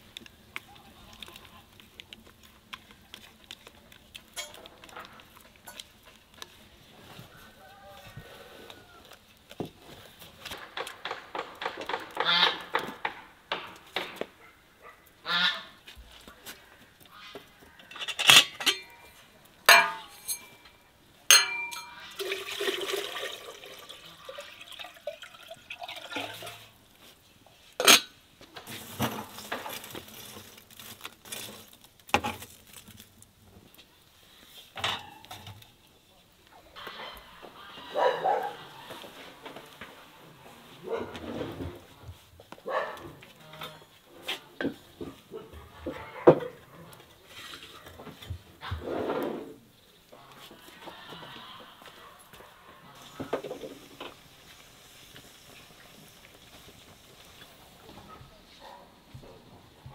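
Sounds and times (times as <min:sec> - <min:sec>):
loud sharp knocks: 0:10.6 - 0:14.2
water pouring into kettle: 0:21.6 - 0:26.8.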